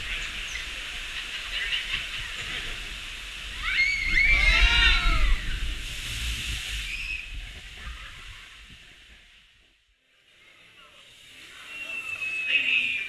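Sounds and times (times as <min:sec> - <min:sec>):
rushing water hiss: 0:00.0 - 0:13.0.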